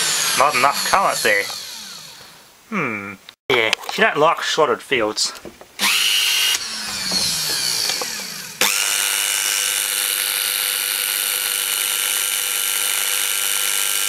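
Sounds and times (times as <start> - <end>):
blender motor whining: 0.0 - 2.4, 5.8 - 14.0.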